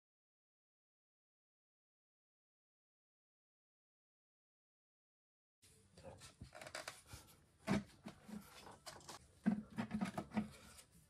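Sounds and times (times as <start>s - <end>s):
plastic part rattling and knocking: 7.7s - 10.7s.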